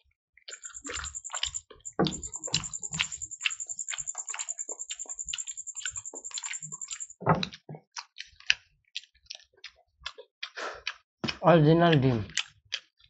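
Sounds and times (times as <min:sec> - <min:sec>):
person chewing food: 0:00.5 - 0:02.2, 0:04.2 - 0:11.0, 0:12.3 - 0:13.0
rapid high-pitched ticking: 0:00.5 - 0:07.2
small clicks: 0:00.5 - 0:07.2.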